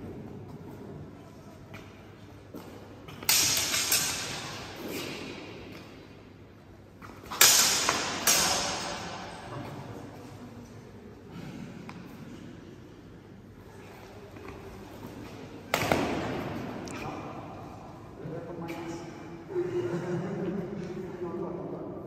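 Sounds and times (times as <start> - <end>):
sword blades clashing: 3.1 - 5.6, 7.3 - 9.5.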